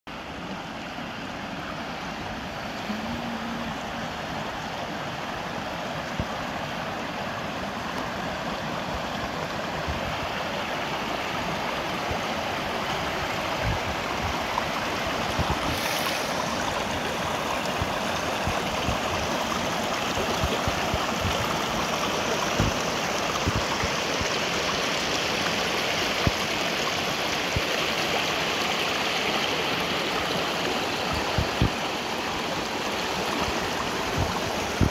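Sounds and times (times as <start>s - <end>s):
stream running over rocks: 0.1s - 34.9s.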